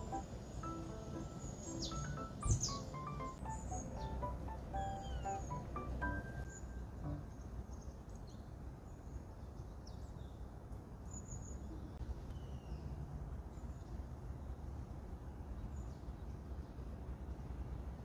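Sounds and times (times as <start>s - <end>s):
faint bird chirps: 0.0s - 9.0s.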